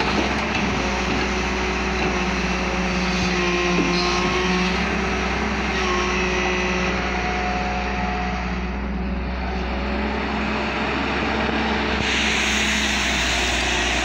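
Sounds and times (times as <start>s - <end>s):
excavator diesel engine under load: 0.0s - 14.0s
hydraulics whining: 0.0s - 14.0s
loud hiss: 12.0s - 14.0s.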